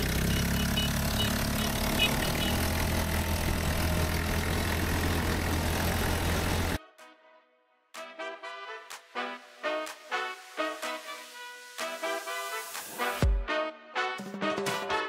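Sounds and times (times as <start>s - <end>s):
dune buggy engine running: 0.0s - 6.8s.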